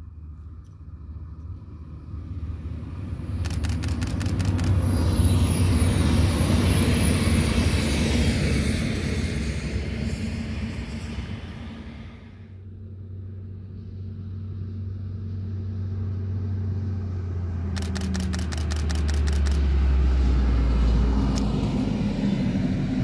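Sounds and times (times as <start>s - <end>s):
train engine drone passing: 0.0s - 23.0s
sharp regular clicks: 3.4s - 4.8s, 17.8s - 19.7s.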